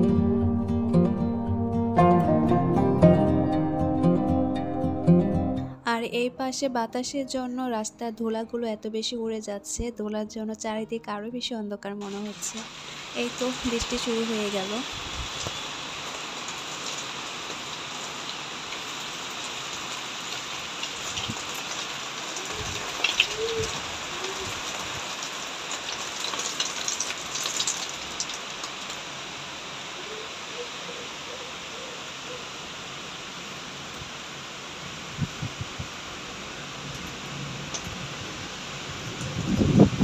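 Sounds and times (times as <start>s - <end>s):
raindrops pattering: 12.0s - 30.0s, 35.6s - 39.6s
rain on foliage: 12.0s - 40.0s.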